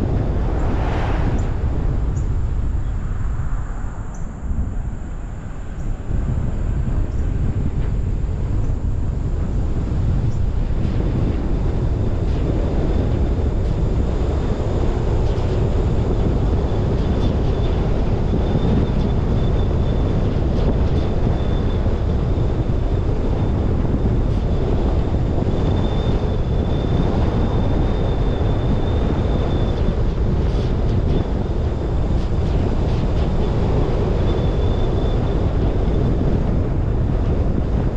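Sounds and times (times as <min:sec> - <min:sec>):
faint high whine: 0:00.0 - 0:06.7
car road and tyre noise: 0:00.0 - 0:37.9
wind buffeting camera: 0:00.0 - 0:37.9.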